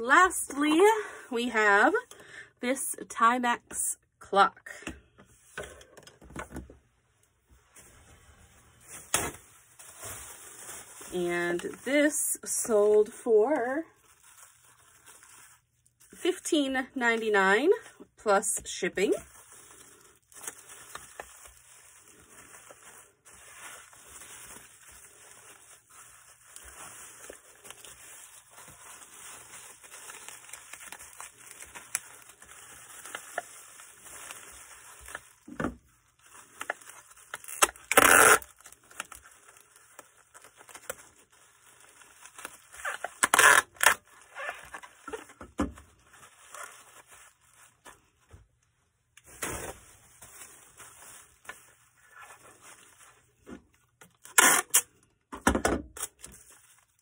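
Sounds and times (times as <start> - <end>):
packaging crinkling: 8.8 - 16.3, 18.6 - 48.4, 49.1 - 55.0, 56.0 - 57.0
packaging tearing: 14.0 - 16.2, 19.0 - 35.5, 36.1 - 45.3, 54.2 - 55.0.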